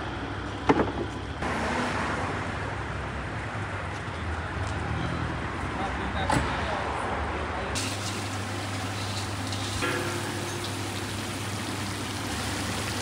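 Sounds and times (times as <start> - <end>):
oil sizzling in a pot: 7.8 - 13.0.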